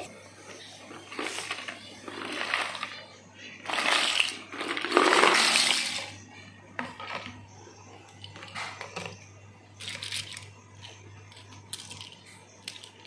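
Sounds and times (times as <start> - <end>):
plastic toys clattering: 0.0 - 7.4, 8.0 - 13.0
toys clicking and rattling: 0.9 - 6.2, 8.0 - 13.0.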